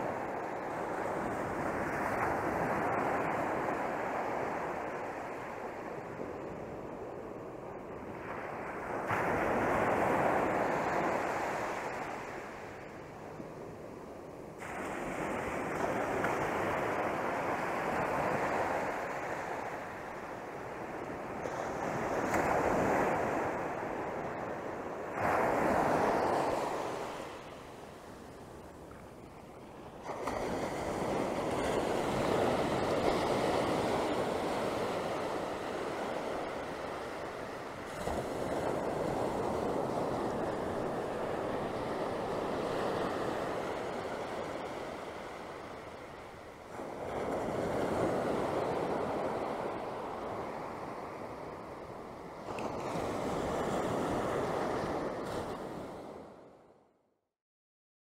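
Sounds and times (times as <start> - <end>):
waves breaking on beach: 0.0 - 56.7.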